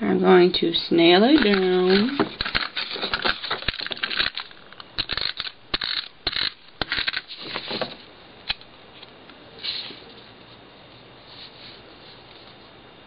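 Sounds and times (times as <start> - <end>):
paper rustling and crinkling: 1.4 - 4.5, 7.0 - 8.0.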